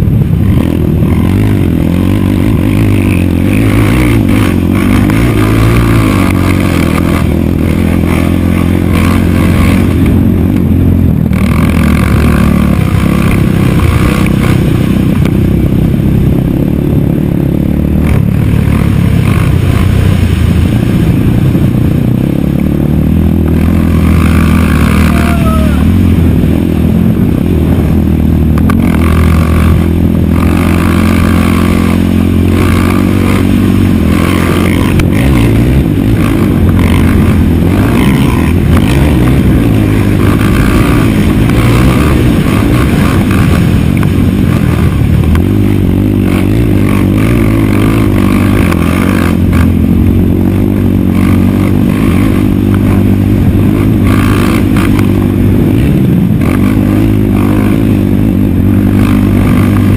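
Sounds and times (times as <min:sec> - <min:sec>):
quad engine revving: 0:00.0 - 0:59.9.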